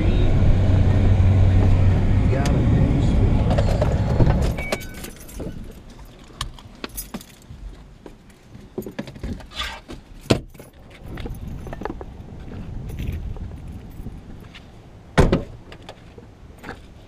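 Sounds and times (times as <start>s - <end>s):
car engine running: 0.0s - 5.8s
keys jangling: 4.6s - 7.5s.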